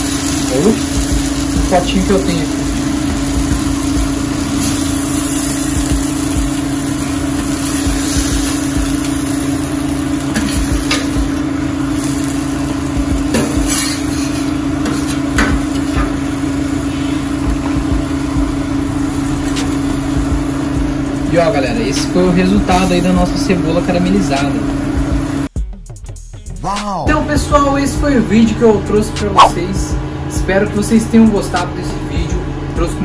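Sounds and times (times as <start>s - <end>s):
steady mechanical hum: 0.0s - 25.5s, 27.0s - 33.0s
spoon scraping a pan: 13.4s - 15.4s.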